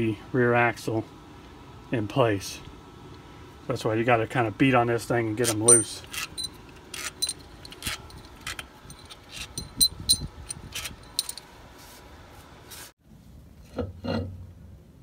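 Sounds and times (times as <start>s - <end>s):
light metallic clinks: 7.2s - 11.5s.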